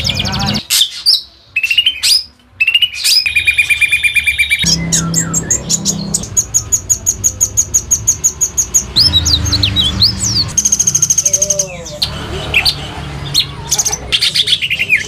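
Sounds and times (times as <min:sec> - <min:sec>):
songbirds singing: 0:00.0 - 0:15.0.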